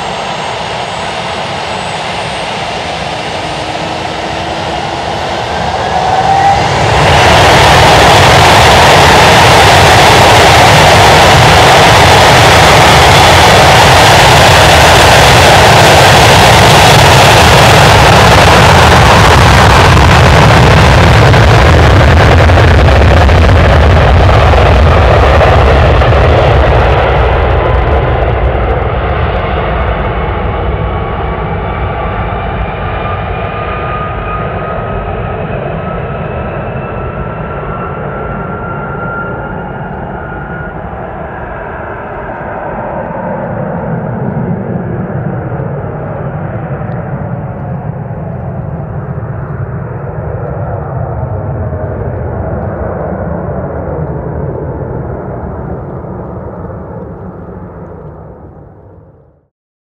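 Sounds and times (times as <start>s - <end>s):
thin high whine: 0.0s - 21.4s
jet engines roaring: 0.0s - 59.1s.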